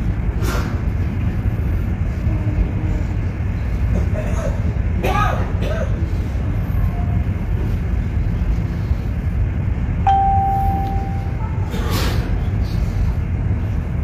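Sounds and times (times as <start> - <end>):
low outdoor rumble: 0.0 - 14.0
held tone: 10.1 - 11.6.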